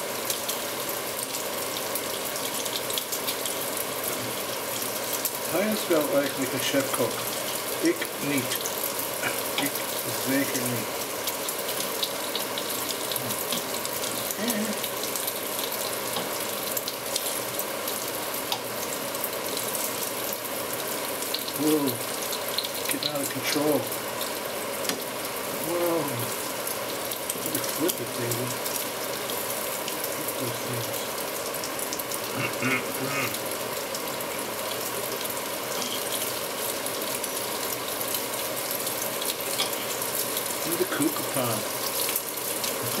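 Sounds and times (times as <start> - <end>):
bacon sizzling in a pan: 0.0 - 43.0
fat spitting crackles: 32.3 - 33.4.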